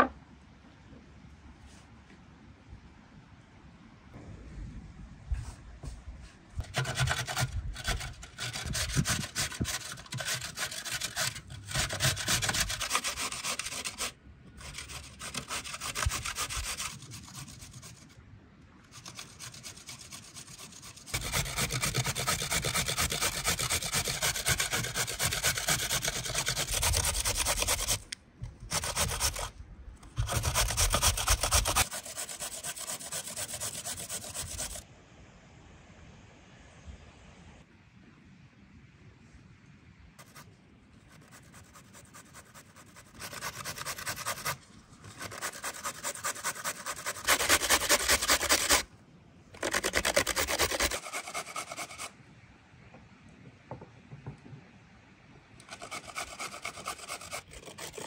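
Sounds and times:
rhythmic rasping scraping strokes: 0:06.6 - 0:18.1, 0:18.9 - 0:28.1, 0:42.8 - 0:48.8.

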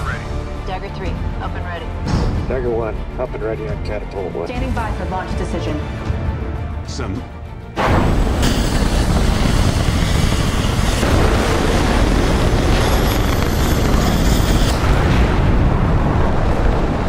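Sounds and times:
jet engines roaring: 0:08.1 - 0:17.0.

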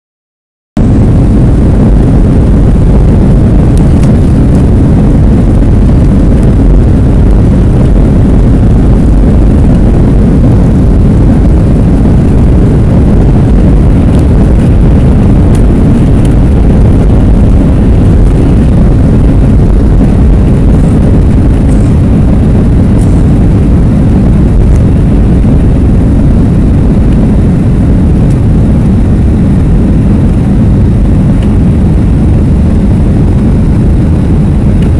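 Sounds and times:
jet engines roaring: 0:00.8 - 0:34.9.

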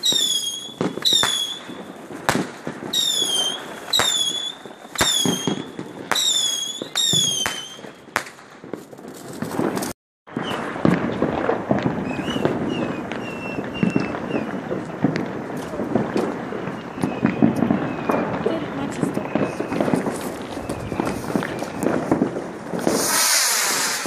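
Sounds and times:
whistling fireworks: 0:00.0 - 0:24.0
distant pops and chirps: 0:10.3 - 0:15.3, 0:16.6 - 0:22.0.

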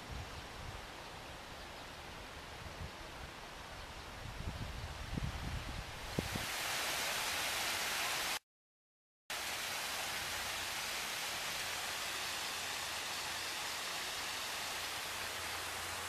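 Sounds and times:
stream water over rocks: 0:06.1 - 0:08.4, 0:09.3 - 0:16.0.

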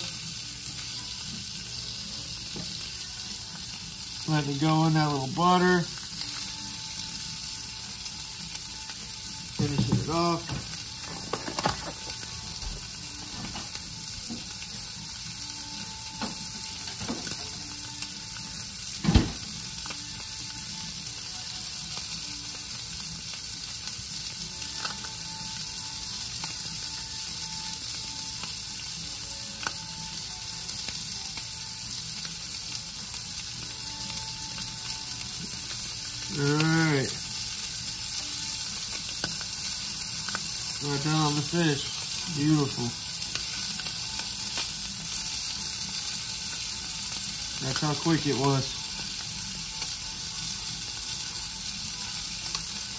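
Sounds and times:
fish sizzling in a skillet: 0:00.0 - 0:52.9
man's voice: 0:09.6 - 0:10.6.

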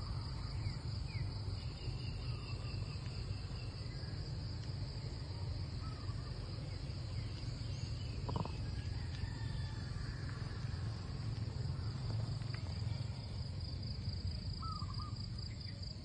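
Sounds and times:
insect chorus drone: 0:00.0 - 0:16.0.

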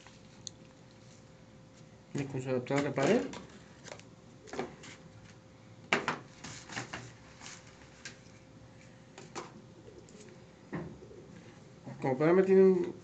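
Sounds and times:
cardboard rustling: 0:02.7 - 0:05.4.

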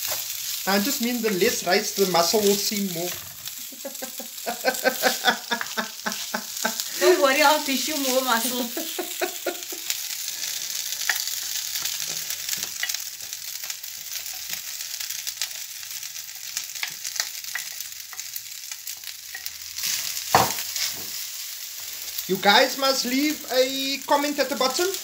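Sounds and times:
rice sizzling in a frying pan: 0:00.0 - 0:25.0.

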